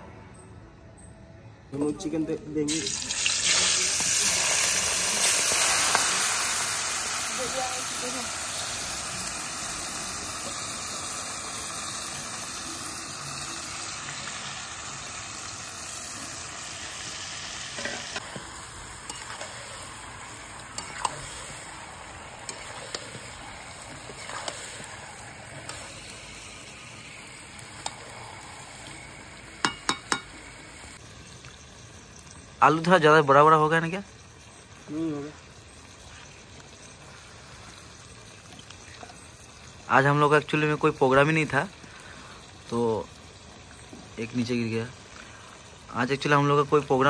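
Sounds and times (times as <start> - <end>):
food sizzling in oil: 2.6 - 47.0
spatula scraping and knocking wok: 17.7 - 26.4.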